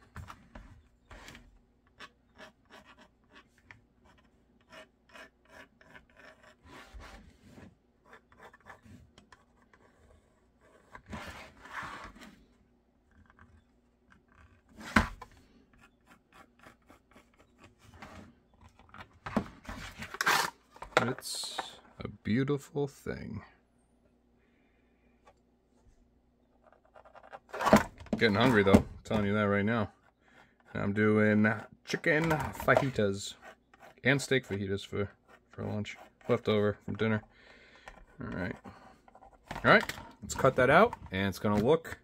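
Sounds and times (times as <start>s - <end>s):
pencil scratching on plastic: 1.1s - 12.2s, 13.0s - 14.9s, 15.6s - 18.8s, 26.6s - 27.6s, 29.8s - 41.0s.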